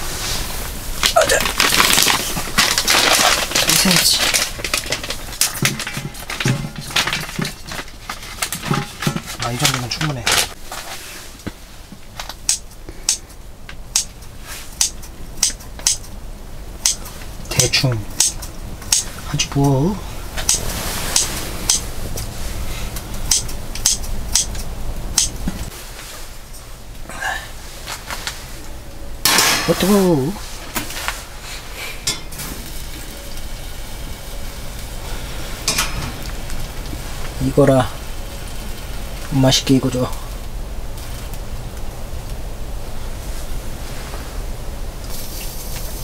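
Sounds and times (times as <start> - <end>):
food sizzling in a pan: 45.1 - 46.0.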